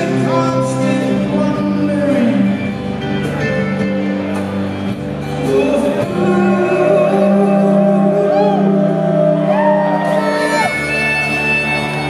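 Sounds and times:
man singing: 0.0 - 4.0, 5.2 - 12.0
drums: 0.0 - 12.0.

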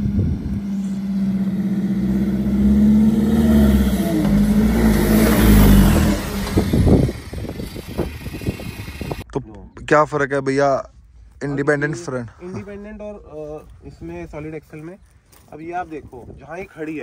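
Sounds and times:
car engine running under load: 0.0 - 9.2.

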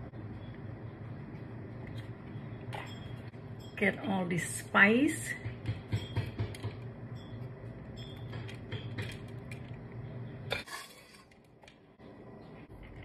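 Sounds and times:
metal spatula scraping skillet: 10.5 - 11.3.

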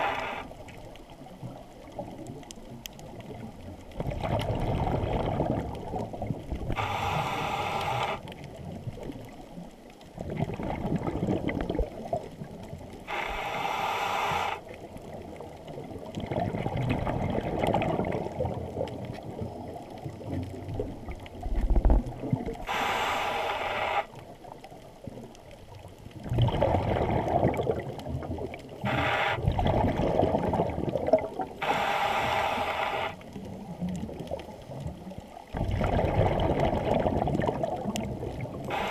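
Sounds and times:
hissing regulator inhalations: 0.0 - 0.5, 6.7 - 8.3, 13.1 - 14.8, 22.6 - 24.1, 28.8 - 29.5, 31.6 - 33.2, 38.7 - 38.9
bubbling exhalations: 10.2 - 12.0, 26.2 - 33.2, 35.5 - 38.9.

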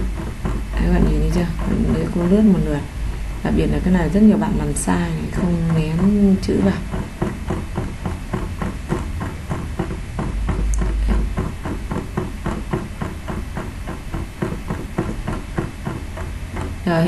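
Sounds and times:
mouse scroll wheel clicking: 0.0 - 16.9.

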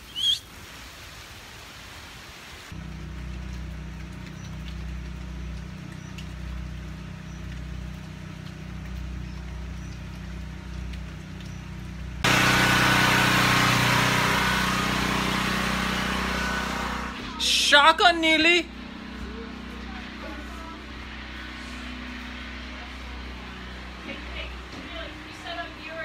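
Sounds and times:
generator engine running: 2.8 - 26.0.

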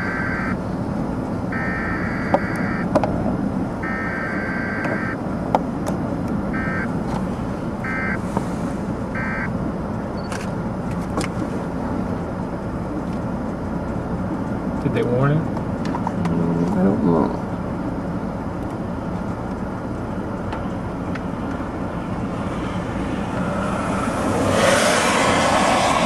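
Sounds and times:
electronic beeper tones: 0.0 - 0.6, 1.5 - 2.9, 3.8 - 5.2, 6.5 - 6.9, 7.8 - 8.2, 9.2 - 9.5.

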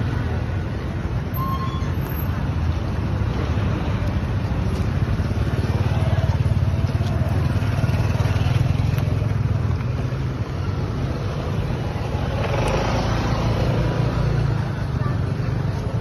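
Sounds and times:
street traffic rumble: 0.0 - 16.0
motor scooter passing: 4.7 - 16.0.

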